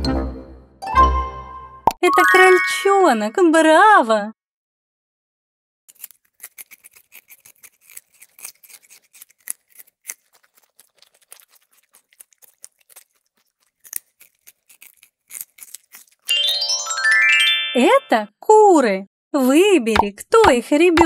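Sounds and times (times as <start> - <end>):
rabbits chewing grass: 5.9 - 16.3.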